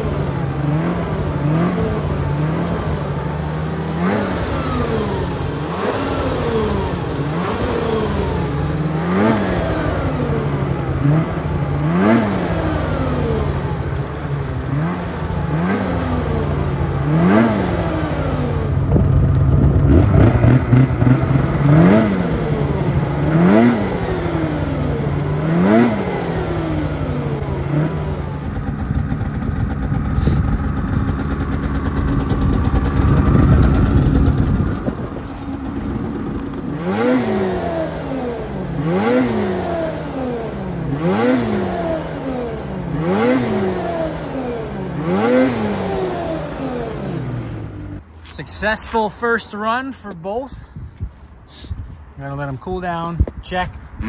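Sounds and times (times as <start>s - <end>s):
snowmobile engine revving: 0.0s - 50.6s.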